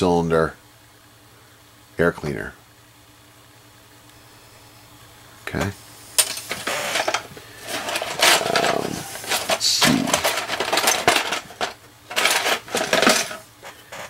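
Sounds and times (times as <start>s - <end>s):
plastic parts clattering in a box: 6.2s - 14.0s.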